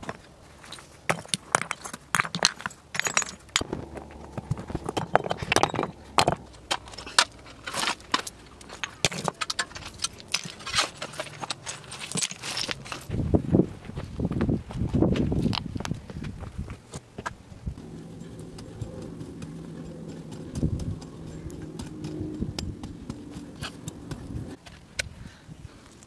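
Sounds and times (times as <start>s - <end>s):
footsteps on rocky ground: 0.0s - 25.2s
stones knocking together: 1.1s - 13.1s.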